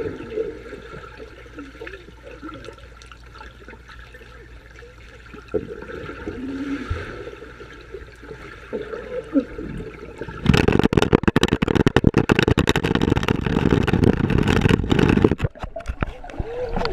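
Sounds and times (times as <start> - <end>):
bubbles and churned water rushing: 0.0 - 16.9.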